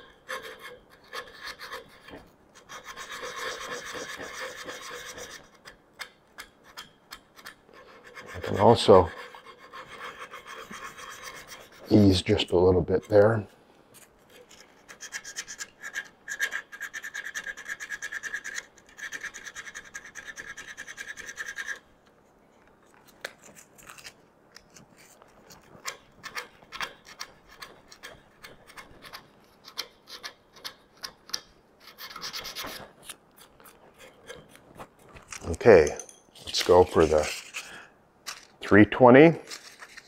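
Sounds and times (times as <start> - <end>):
sandpaper rasping on wood: 2.7 - 5.5, 7.8 - 12.3.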